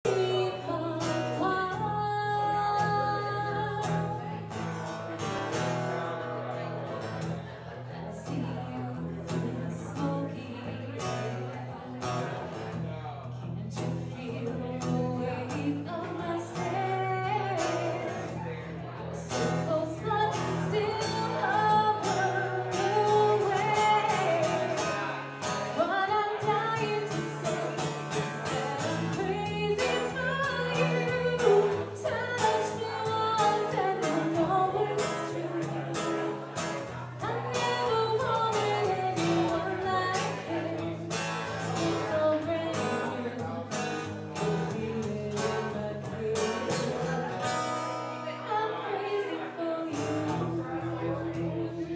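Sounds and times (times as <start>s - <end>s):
strummed acoustic guitar: 0.0s - 51.9s
woman singing a ballad: 0.1s - 4.4s, 13.7s - 18.4s, 19.1s - 36.6s, 37.2s - 43.6s, 44.4s - 46.9s, 48.4s - 51.9s.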